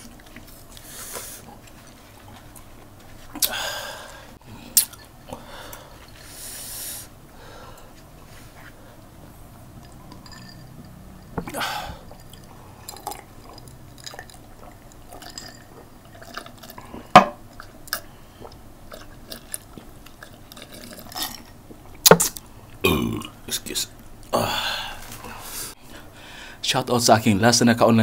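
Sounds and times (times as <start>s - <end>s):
small clicks and mouth sounds: 4.8s - 5.4s, 11.2s - 22.8s
sipping and swallowing: 11.2s - 23.3s.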